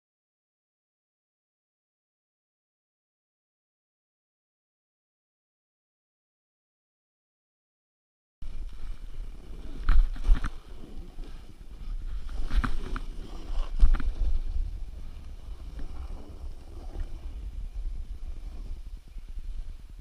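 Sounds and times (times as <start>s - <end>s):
wind rumble: 8.4s - 20.0s
snow hissing under snowboard: 10.5s - 19.9s.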